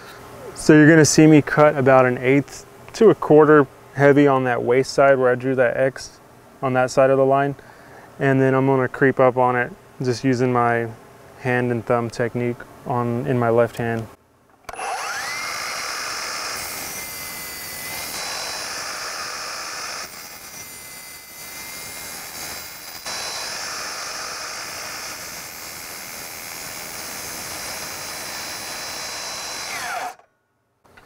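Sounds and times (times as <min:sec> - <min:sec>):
miter saw motor whining: 0:14.7 - 0:30.3
saw blade cutting wood: 0:14.7 - 0:30.3.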